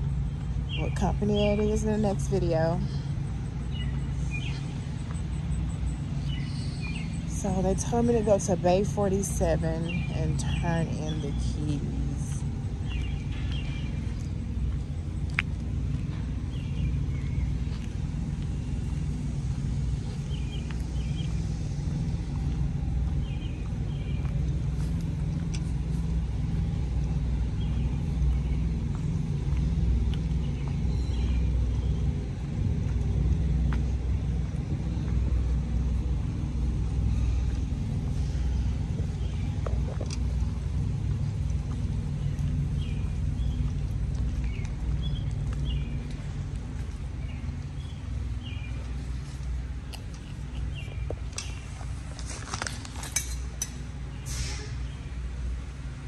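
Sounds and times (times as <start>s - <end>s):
diesel engine humming: 0.0s - 56.0s.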